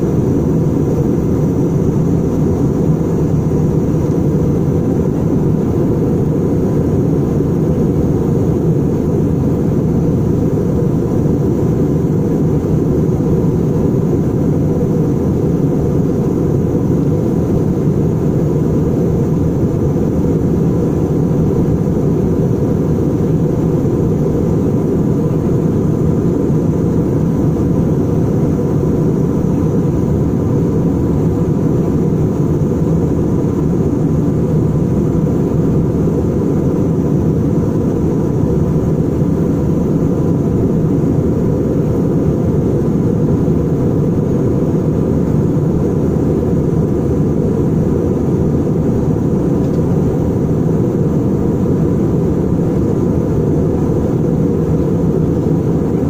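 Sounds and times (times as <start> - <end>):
jet engines roaring in cabin: 0.0 - 56.0.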